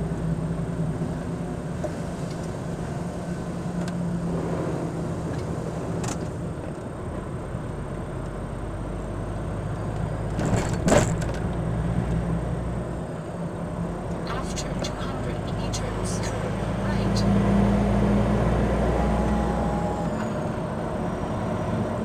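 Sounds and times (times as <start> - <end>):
tyre and road noise: 0.0 - 22.0
vehicle engine running: 11.4 - 22.0.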